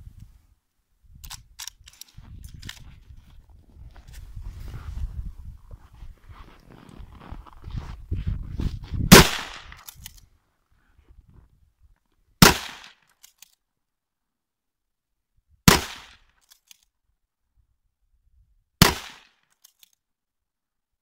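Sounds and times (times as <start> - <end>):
faint rifle bolt clicks: 1.2 - 2.8
rifle shots: 9.1 - 9.8, 12.4 - 13.0, 15.7 - 16.2, 18.8 - 19.3.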